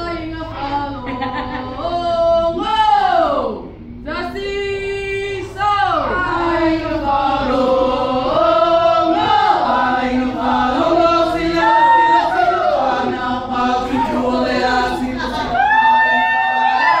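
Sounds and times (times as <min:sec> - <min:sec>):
group of voices chanting: 0:06.0 - 0:17.0.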